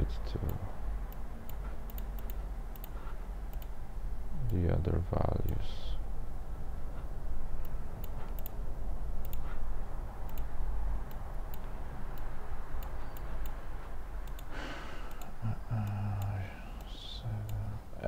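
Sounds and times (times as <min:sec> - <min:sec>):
steady low hum: 0:00.0 - 0:18.0
computer mouse clicks: 0:00.4 - 0:03.8, 0:07.6 - 0:08.6, 0:09.2 - 0:09.6, 0:10.3 - 0:17.7.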